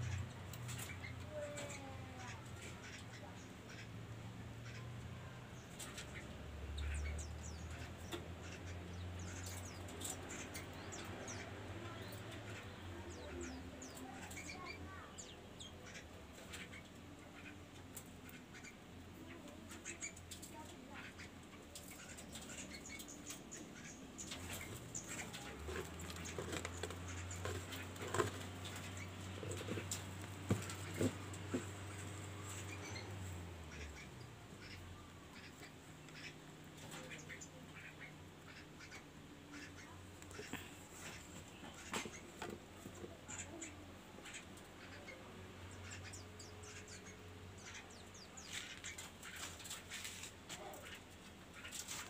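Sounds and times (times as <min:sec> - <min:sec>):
small birds chirping: 0:00.0 - 0:52.0.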